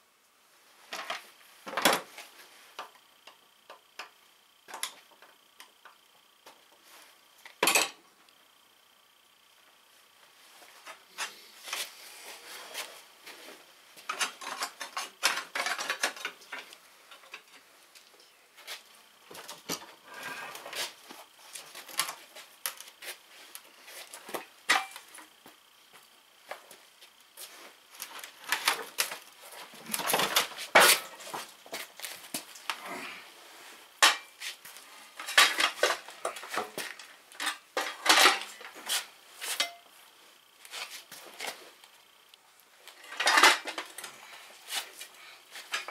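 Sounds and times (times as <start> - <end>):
tools and steel parts clinking: 7.6 - 8.0, 14.1 - 17.5.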